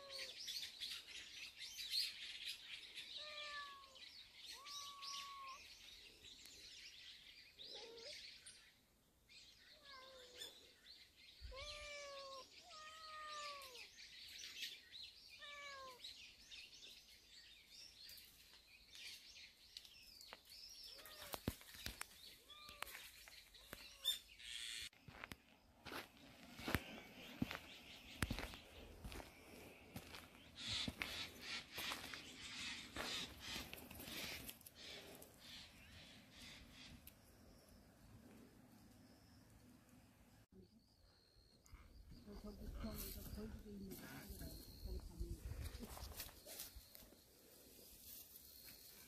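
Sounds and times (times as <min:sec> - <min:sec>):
birds chirping: 0:00.0 - 0:49.0
cat meowing: 0:03.2 - 0:05.6, 0:09.8 - 0:10.5, 0:11.5 - 0:13.9, 0:15.4 - 0:16.0, 0:20.9 - 0:21.5, 0:22.4 - 0:22.9.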